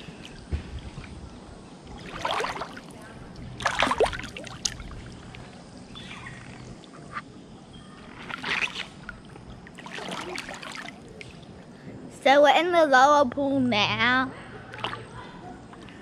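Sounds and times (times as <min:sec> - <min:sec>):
low wash of water: 0:00.0 - 0:05.5, 0:08.2 - 0:11.6
water splashing from swimmers: 0:01.9 - 0:03.0, 0:03.6 - 0:05.0, 0:08.2 - 0:11.5.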